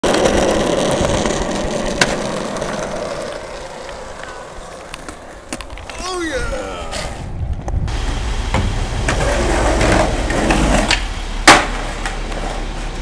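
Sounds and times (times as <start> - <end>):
skateboard wheels rolling on asphalt: 0.0 - 13.0.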